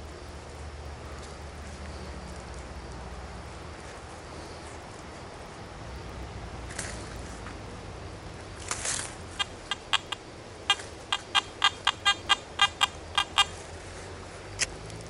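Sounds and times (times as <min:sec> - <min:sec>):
brief rustle: 0:08.6 - 0:09.2
metal detector pinpointer beeping: 0:09.4 - 0:13.6.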